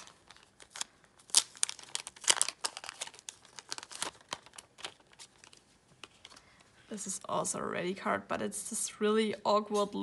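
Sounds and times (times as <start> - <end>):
cards rustling and clicking: 0.0 - 6.7.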